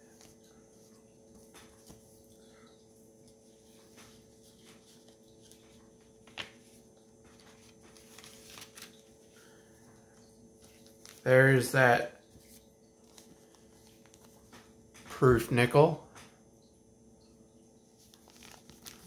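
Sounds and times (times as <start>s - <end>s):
low steady hum: 0.0s - 19.0s
packaging clicks and rustles: 18.0s - 19.0s.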